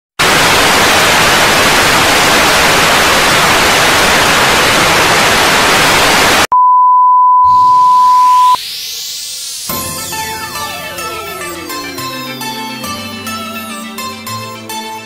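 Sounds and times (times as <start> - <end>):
tv static hiss: 0.2 - 6.5
high-pitched test tone beep: 6.5 - 9.0.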